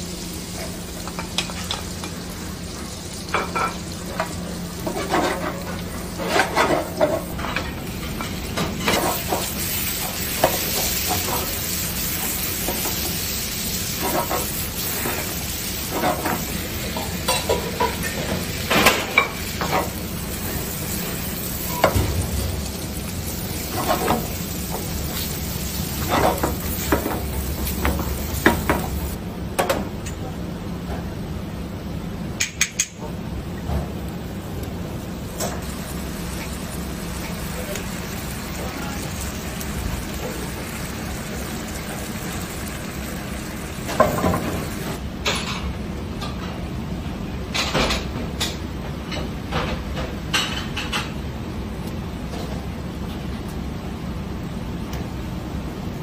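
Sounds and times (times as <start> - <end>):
squid frying in a pan: 0.0 - 29.2, 34.9 - 45.0.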